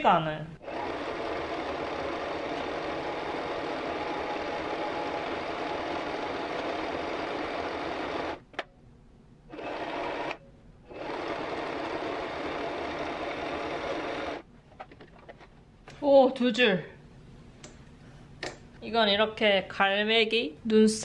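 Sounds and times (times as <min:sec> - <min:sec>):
electric sewing machine stitching: 0:00.6 - 0:08.4, 0:09.5 - 0:14.4.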